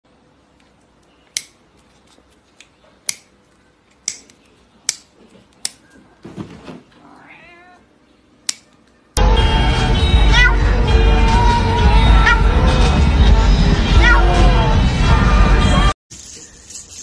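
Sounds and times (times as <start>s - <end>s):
cat meowing: 7.0s - 7.9s, 10.3s - 10.8s, 12.2s - 12.6s, 14.0s - 14.6s.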